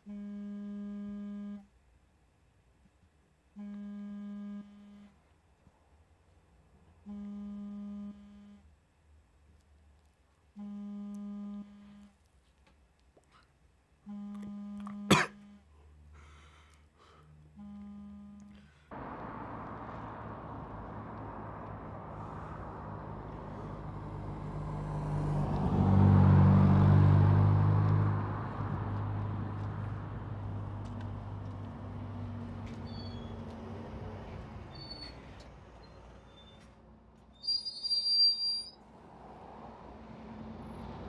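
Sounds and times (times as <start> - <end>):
road traffic engine hum: 15.1 - 41.0
vehicle passing with engine drone: 18.7 - 37.2, 38.7 - 41.0
bus brake squeal and hiss: 32.8 - 33.4, 34.7 - 36.7, 37.4 - 38.8.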